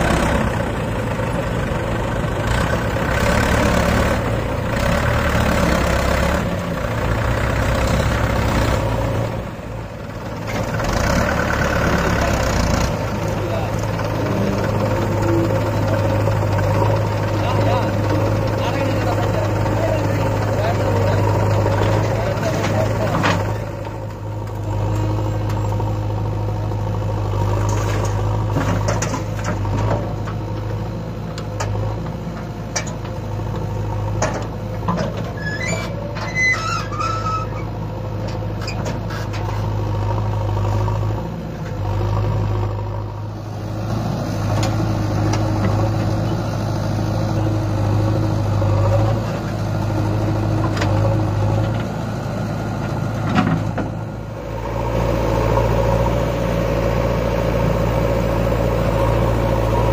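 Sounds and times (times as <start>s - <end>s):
tractor diesel engine running: 0.0s - 59.9s
high squeaks: 35.4s - 37.7s.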